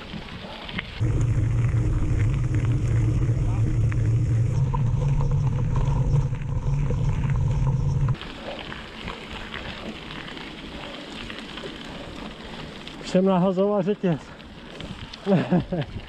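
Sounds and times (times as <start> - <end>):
wind rumble on microphone: 0.0 - 8.3
tyres rolling over gravel: 0.0 - 16.0.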